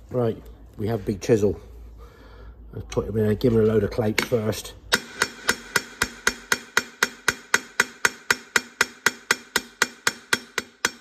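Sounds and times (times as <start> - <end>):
hammer striking chisel: 4.2 - 11.0.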